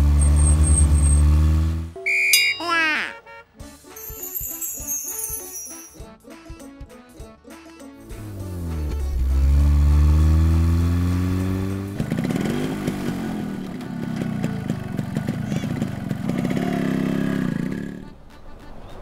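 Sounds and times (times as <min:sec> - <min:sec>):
motorcycle engine revving: 0:00.0 - 0:02.0, 0:08.1 - 0:18.1
vehicle engine rising in pitch: 0:08.1 - 0:14.5.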